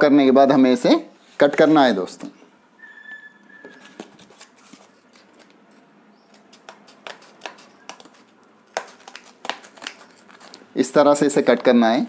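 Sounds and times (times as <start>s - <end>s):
scissors snipping cardboard: 6.3s - 10.5s.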